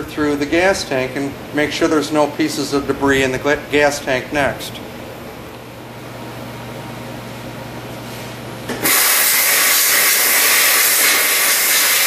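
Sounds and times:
steady low hum: 0.0 - 11.8
compressed air hissing: 8.8 - 12.0.

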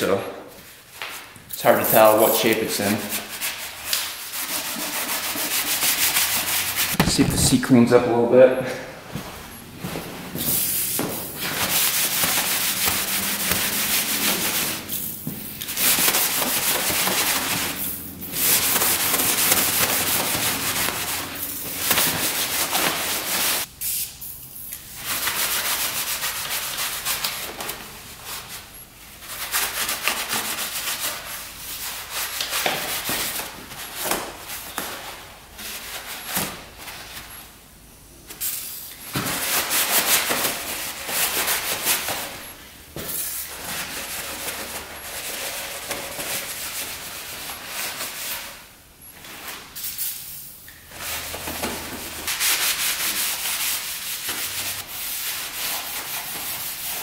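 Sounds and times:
cloth rag scrubbing a seat: 1.1 - 7.0, 9.1 - 23.7.

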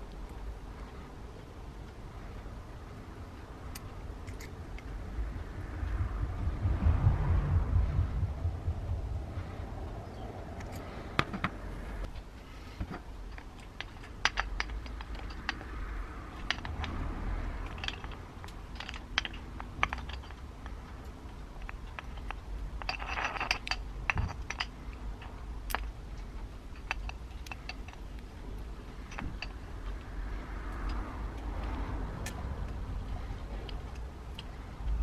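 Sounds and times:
steady low hum: 0.0 - 35.0
metal parts clicking and tapping: 3.7 - 5.0, 10.6 - 35.0.

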